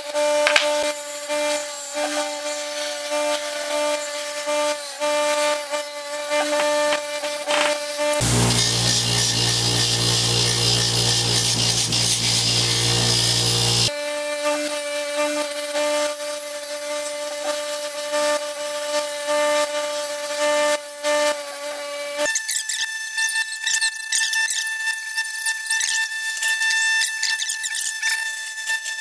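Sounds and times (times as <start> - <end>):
bench grinder motor humming: 6.3 - 13.9
wire wheel rasping on metal: 6.3 - 13.9.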